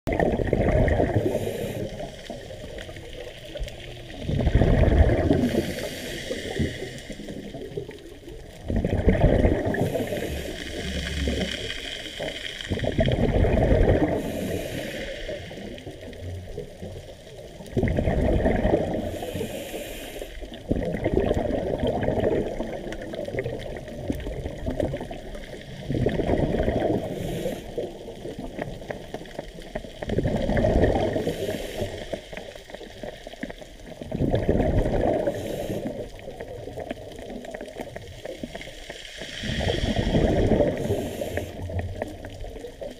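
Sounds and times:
rush of bubbles underwater: 0.1s - 42.9s
regulator inhale hiss: 1.2s - 2.6s, 5.4s - 7.6s, 9.7s - 12.0s, 14.1s - 15.9s, 19.0s - 20.6s, 27.0s - 28.0s, 31.1s - 32.5s, 35.2s - 36.3s, 38.6s - 41.8s.

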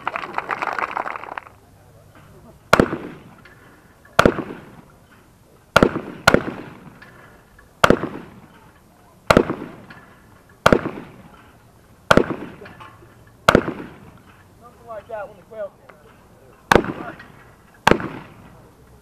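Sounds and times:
shotgun shots echoing: 2.7s - 3.4s, 4.2s - 4.9s, 5.7s - 7.0s, 7.8s - 8.5s, 9.3s - 11.4s, 12.1s - 12.8s, 13.5s - 14.3s, 16.7s - 17.2s, 17.8s - 18.5s.

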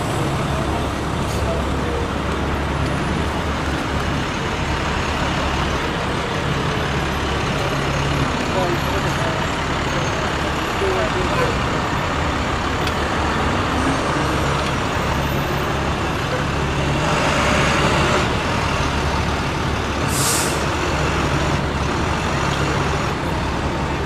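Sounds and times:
diesel trucks driving past: 0.0s - 24.0s
air-brake hiss: 20.1s - 20.7s.

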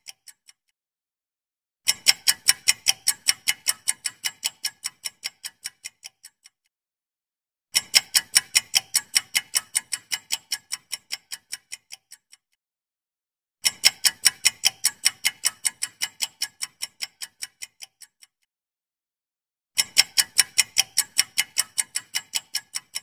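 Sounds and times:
fast clock ticks: 0.0s - 0.6s, 1.9s - 6.6s, 7.8s - 12.5s, 13.6s - 18.4s, 19.8s - 23.0s.

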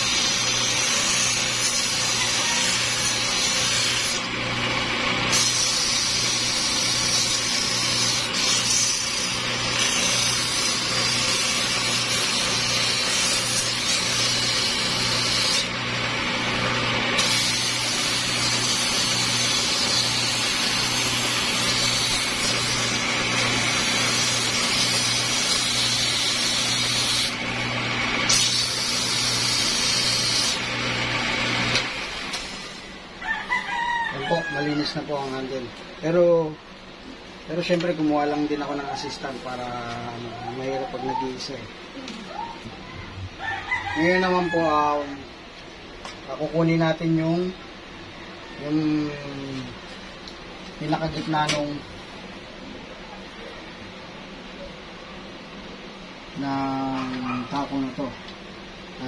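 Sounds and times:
sandpaper hissing: 0.0s - 4.2s, 5.3s - 15.7s, 17.2s - 27.4s
electric motor humming: 0.0s - 33.2s.

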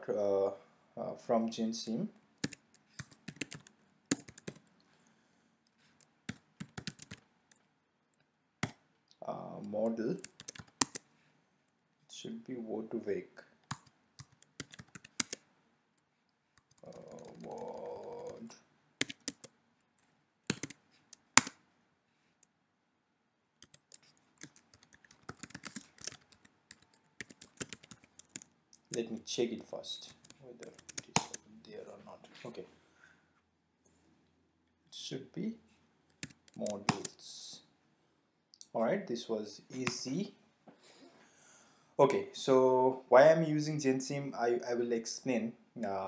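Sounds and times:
typing on keyboard: 2.4s - 4.6s, 6.3s - 7.2s, 10.2s - 11.0s, 13.7s - 15.4s, 16.6s - 19.5s, 20.5s - 21.5s, 23.6s - 29.1s, 30.1s - 31.4s, 36.1s - 37.1s.

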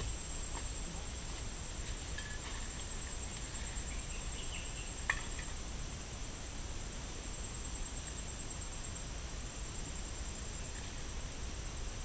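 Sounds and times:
faint bird chirps: 3.2s - 5.5s.

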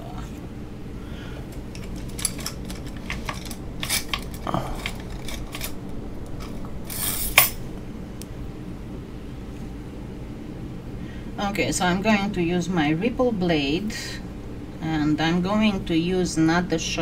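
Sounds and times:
metal tools clinking: 1.5s - 7.6s
tools scraping: 1.5s - 7.6s.

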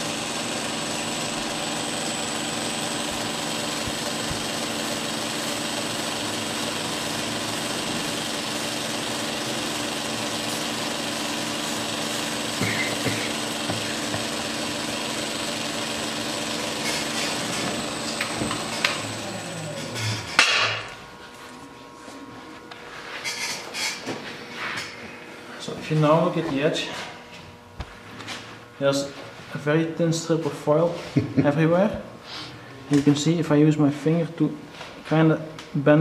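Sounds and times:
motor spinning down: 0.0s - 21.0s
belt grinder running: 0.0s - 21.2s.

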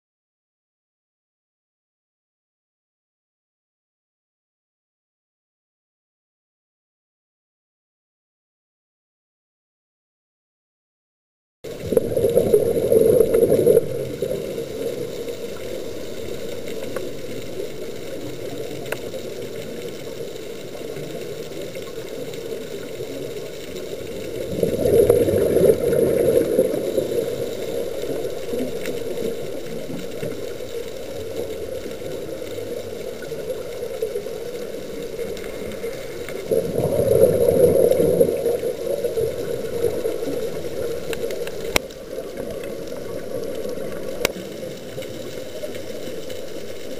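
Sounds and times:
underwater exhalation bubbles: 11.7s - 15.0s, 24.3s - 28.8s, 35.4s - 40.7s.

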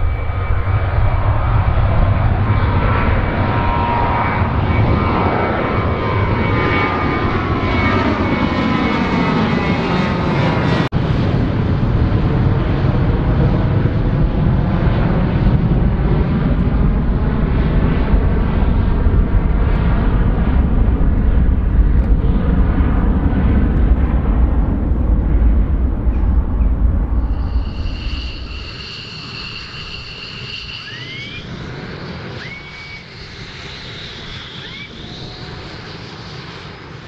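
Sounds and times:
jet engines roaring overhead: 0.0s - 37.0s.

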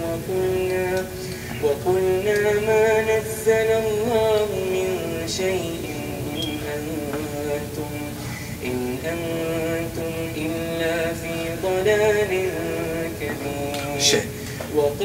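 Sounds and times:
person chanting slow melody: 0.0s - 15.0s.

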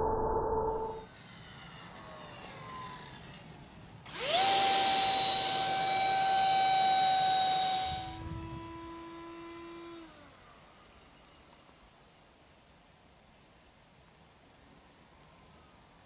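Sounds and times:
model jet fan motor whine: 1.0s - 11.8s.

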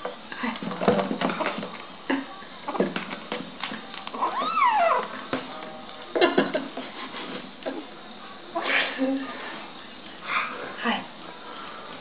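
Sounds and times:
knocks and rustles: 0.0s - 1.9s, 2.7s - 4.3s.

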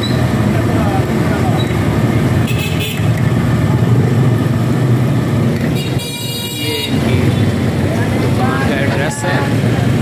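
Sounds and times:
traffic engine rumble: 0.0s - 10.0s
vehicle horn: 2.5s - 3.1s, 5.7s - 7.1s.

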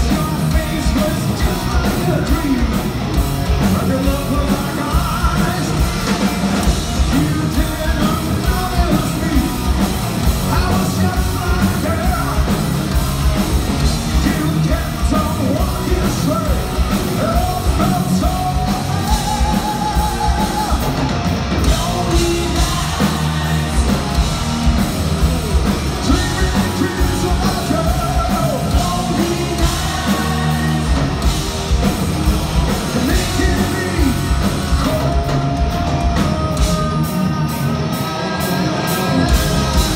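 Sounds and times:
bass guitar: 0.0s - 39.9s
driving drum beat: 0.0s - 39.9s
electric guitars: 0.0s - 39.9s
person singing: 14.1s - 21.0s, 21.6s - 24.8s, 25.9s - 31.4s, 32.9s - 39.9s.

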